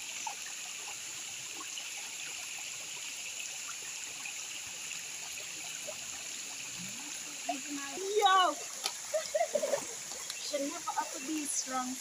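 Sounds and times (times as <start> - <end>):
river running over rocks: 3.7 - 12.0.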